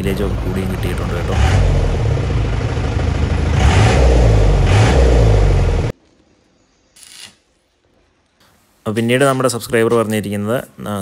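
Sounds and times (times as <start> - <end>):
diesel engine running and revving: 0.0 - 5.9.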